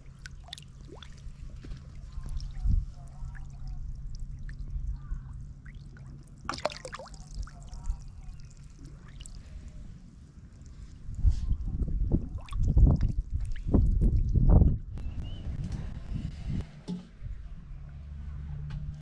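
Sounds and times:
water trickling and bubbling: 0:00.0 - 0:09.8, 0:10.4 - 0:14.5
water splash: 0:05.7 - 0:07.5
low rumble: 0:10.8 - 0:19.0.

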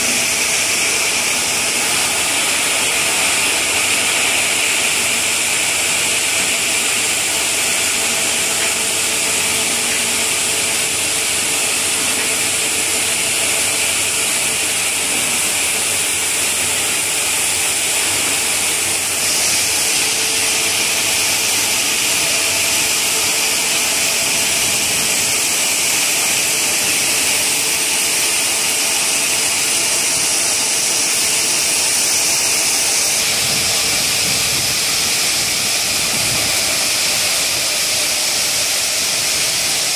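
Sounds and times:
stone saw cutting: 0:00.0 - 0:39.9.

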